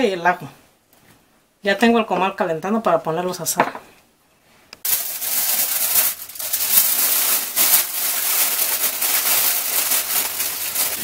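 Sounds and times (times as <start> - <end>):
aluminium foil crinkling: 4.8 - 11.0.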